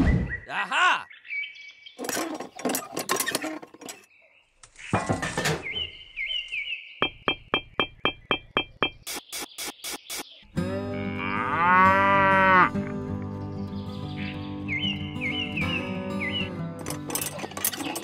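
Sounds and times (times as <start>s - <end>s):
chirping and clinking sound effects: 2.0s - 6.0s, 7.0s - 10.4s, 16.8s - 18.0s.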